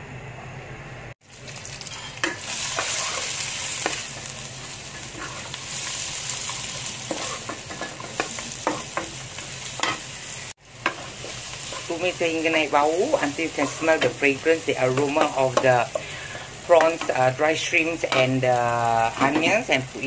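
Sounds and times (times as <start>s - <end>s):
food sizzling in hot oil: 1.2s - 20.0s
spatula knocking and scraping pan: 2.2s - 4.3s, 6.4s - 10.2s, 10.8s - 17.4s, 19.0s - 19.8s.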